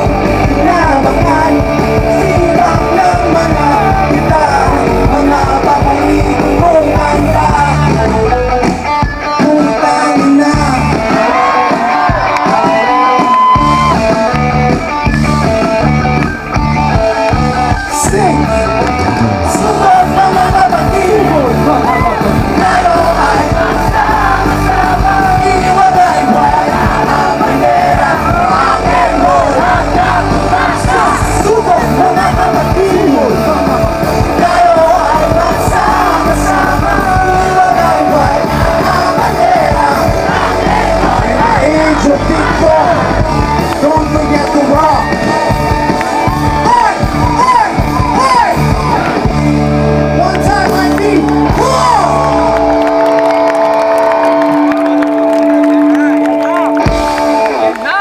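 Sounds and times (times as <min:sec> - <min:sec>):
person singing and shouting: 0:00.0 - 0:14.0, 0:19.4 - 0:45.7, 0:46.5 - 0:49.2
live rock band playing: 0:00.0 - 0:58.0.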